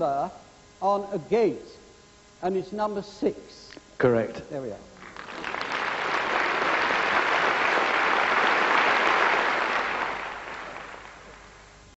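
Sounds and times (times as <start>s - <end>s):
large audience applauding: 5.0s - 11.7s.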